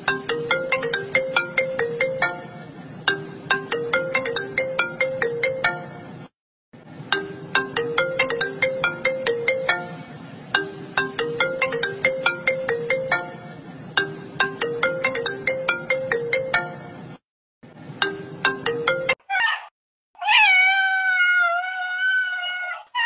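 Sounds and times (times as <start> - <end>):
phone ringtone melody: 0.0 - 6.3, 7.1 - 17.2, 18.0 - 19.2.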